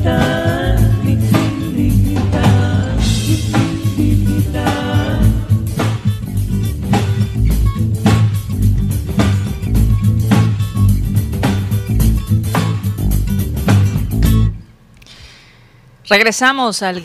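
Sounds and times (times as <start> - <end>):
band with guitar bass and drums: 0.0 - 14.6.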